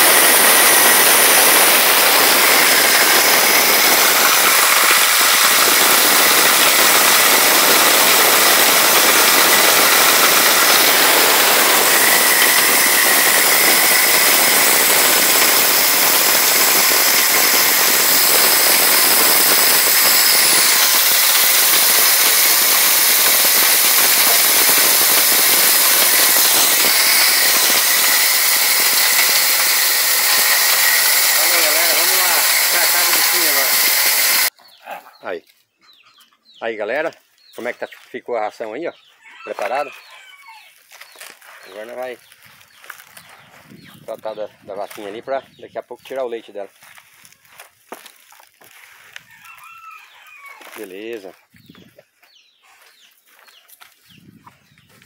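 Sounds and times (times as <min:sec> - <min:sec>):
corn grinder running: 0:00.0 - 0:34.5, 0:46.8 - 0:51.0.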